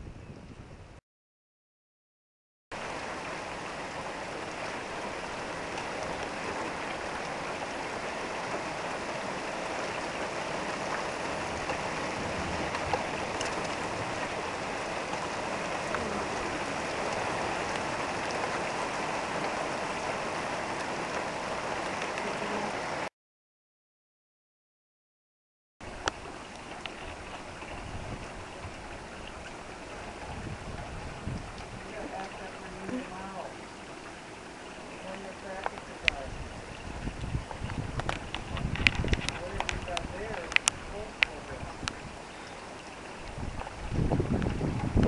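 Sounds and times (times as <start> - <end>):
heavy rain falling: 2.7 - 23.1, 25.8 - 45.0.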